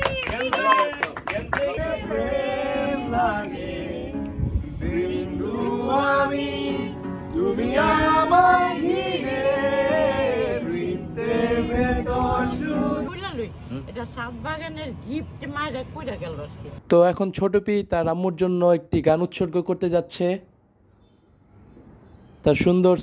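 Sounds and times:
group of people singing: 1.3 - 13.2
acoustic guitar: 1.7 - 14.2.

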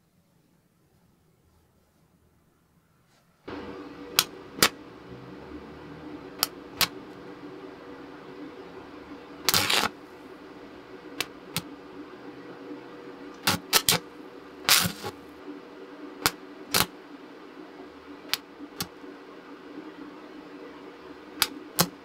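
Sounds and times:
steady low hum: 0.1 - 22.0
electric welding arc bursts: 3.5 - 12.5, 13.3 - 15.4, 16.2 - 16.9.

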